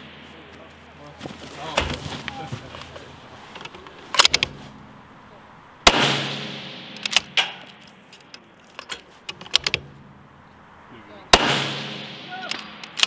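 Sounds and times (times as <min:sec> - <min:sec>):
sharp crack: 0:03.5 - 0:05.0, 0:05.8 - 0:10.2, 0:11.2 - 0:13.0
rifle shot: 0:05.8 - 0:07.8, 0:11.3 - 0:13.0.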